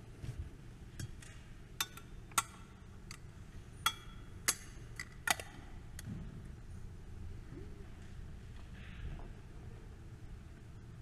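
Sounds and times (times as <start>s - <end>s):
small metallic clicks and clinks: 1.0s - 6.1s.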